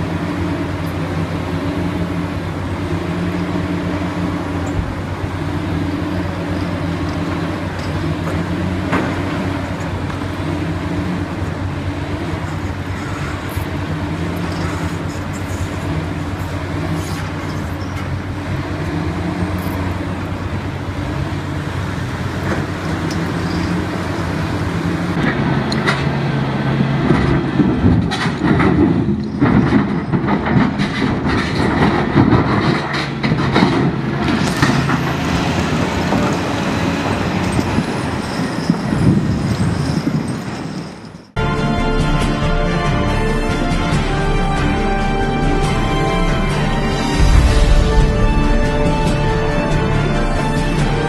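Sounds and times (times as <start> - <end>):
diesel engine running: 0.0 - 38.1, 41.4 - 51.0.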